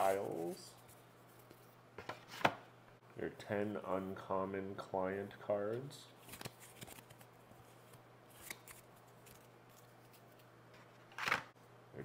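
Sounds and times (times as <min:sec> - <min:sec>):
game cards rustling and sliding: 0:06.2 - 0:11.5.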